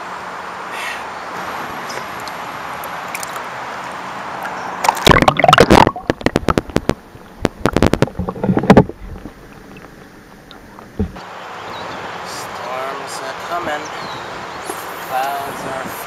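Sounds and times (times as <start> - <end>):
outdoor ambience hiss: 0.0 - 16.0
water splashing: 1.4 - 3.9, 4.8 - 11.2
underwater clicks and knocks: 4.8 - 11.2
underwater gurgling: 4.8 - 11.2.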